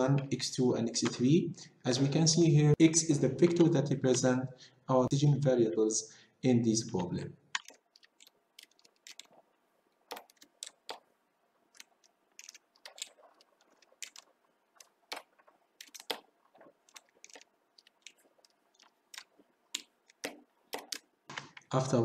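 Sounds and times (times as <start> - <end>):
computer keyboard typing: 7.6 - 9.4, 10.0 - 11.1, 11.7 - 21.6.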